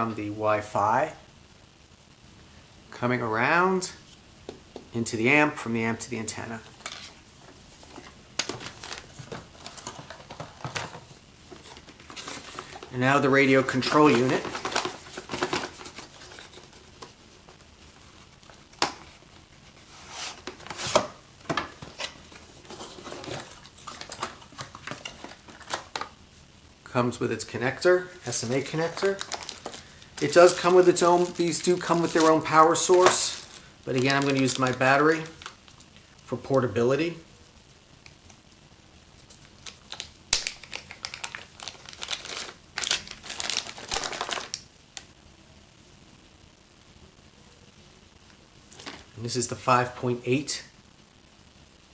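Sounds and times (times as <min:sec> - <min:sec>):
plastic packaging rustling: 0:06.2 - 0:26.2, 0:27.4 - 0:36.9, 0:39.2 - 0:45.1, 0:48.6 - 0:49.4.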